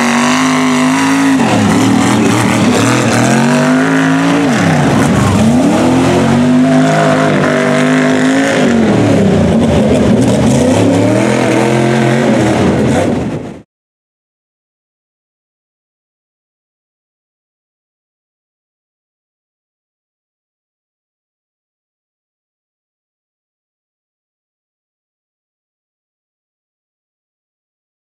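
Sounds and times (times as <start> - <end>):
truck engines revving: 0.0 - 13.6.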